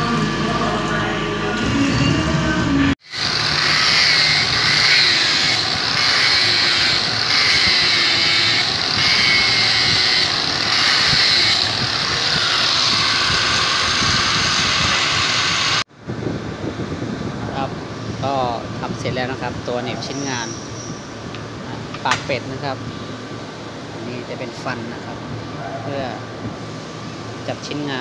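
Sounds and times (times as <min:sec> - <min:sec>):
machinery hiss and whine: 0:00.0 - 0:15.8.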